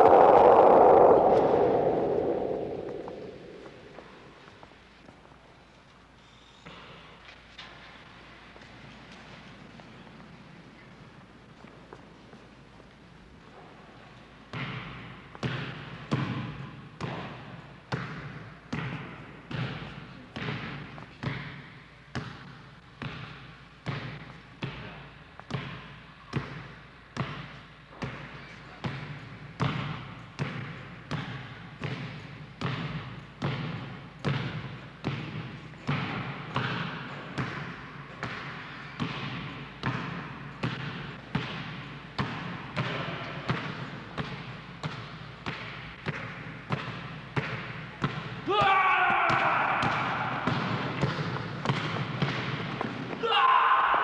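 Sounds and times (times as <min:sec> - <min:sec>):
basketball bouncing in a hall: 0:14.4 - 0:54.0.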